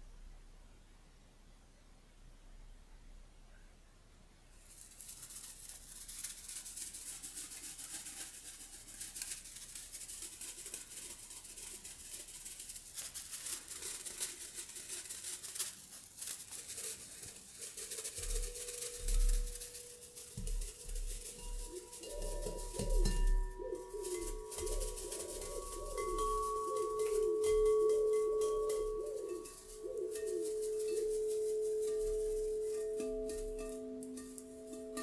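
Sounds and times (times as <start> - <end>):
plush toy crackling rustle: 4.5 - 35.0
singing bowl ringing: 18.2 - 35.0.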